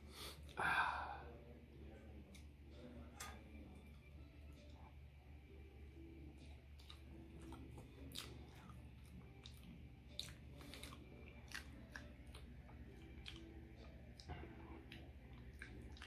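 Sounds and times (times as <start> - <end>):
chewing with mouth smacks: 6.4 - 16.0.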